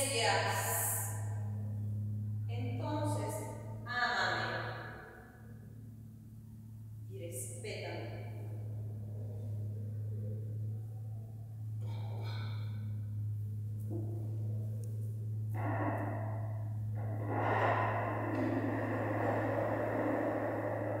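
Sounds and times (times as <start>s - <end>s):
steady low hum: 0.0s - 21.0s
rushing noise: 15.5s - 21.0s.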